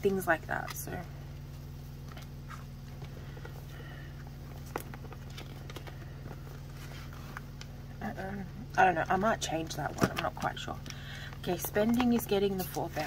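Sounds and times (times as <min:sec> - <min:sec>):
steady low hum: 0:00.0 - 0:13.0
banknotes rustling and clicking: 0:02.0 - 0:07.7, 0:09.4 - 0:13.0.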